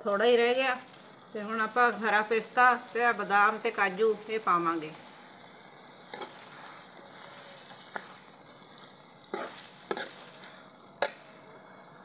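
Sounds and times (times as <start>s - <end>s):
food sizzling in a wok: 0.0s - 12.0s
ladle scraping and clinking pan: 6.1s - 8.2s, 9.3s - 11.3s.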